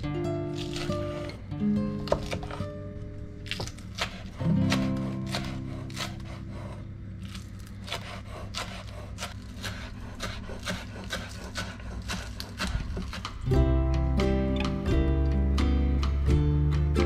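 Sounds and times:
guitar music: 0.0 - 3.6, 4.3 - 6.5, 13.4 - 17.0
knife chopping on wooden board: 2.0 - 2.6, 3.5 - 13.6.

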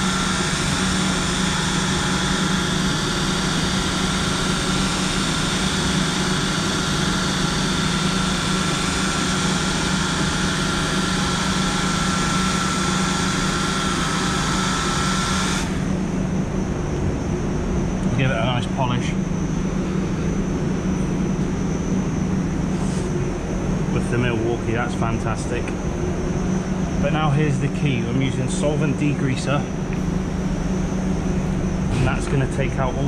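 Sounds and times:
machine polisher whining: 0.0 - 16.8
low steady hum: 0.0 - 33.0.

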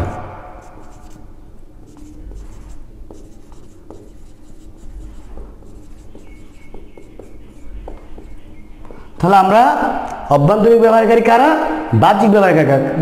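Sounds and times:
marker scratching on whiteboard: 0.0 - 9.2
marker tapping: 0.0 - 9.3.

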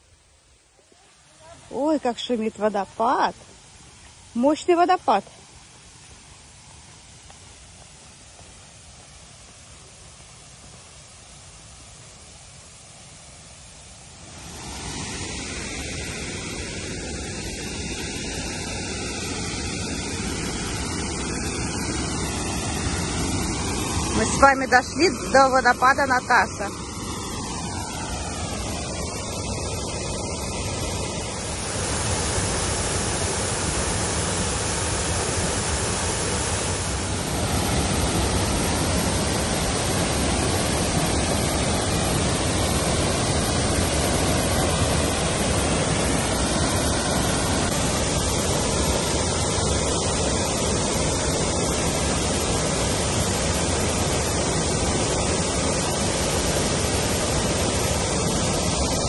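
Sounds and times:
waterfall rushing: 0.8 - 59.0.

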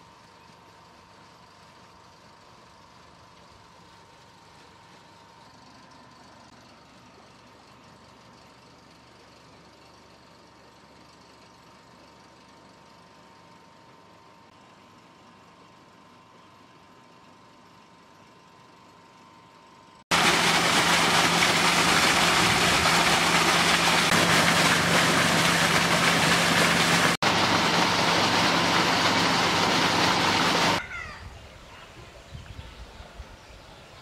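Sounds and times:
water gushing from a pipe: 20.1 - 30.8.

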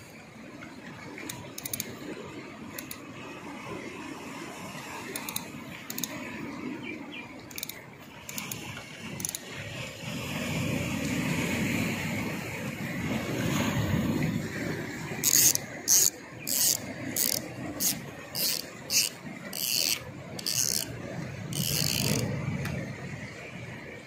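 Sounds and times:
fishing reel drag buzzing: 1.2 - 2.0, 2.7 - 3.0, 5.1 - 6.2, 7.5 - 9.5, 15.2 - 22.3.

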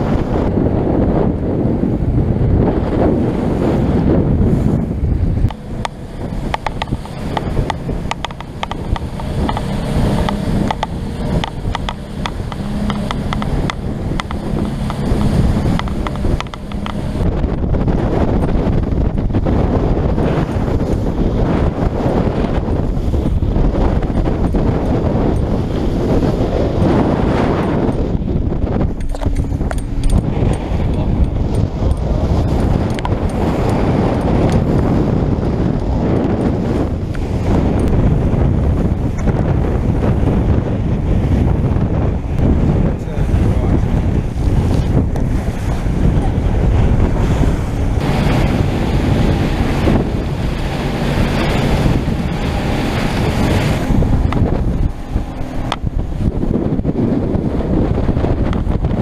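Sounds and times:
boat pounding through rough water: 0.0 - 59.0
outboard motor running: 0.0 - 59.0
wind buffeting microphone: 0.0 - 59.0
sharp ticks and knocks: 5.4 - 17.3, 28.9 - 34.8.

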